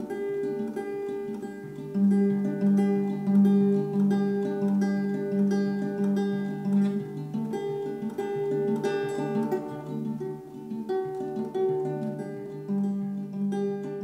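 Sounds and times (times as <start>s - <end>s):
acoustic guitar picked notes: 0.0s - 14.0s.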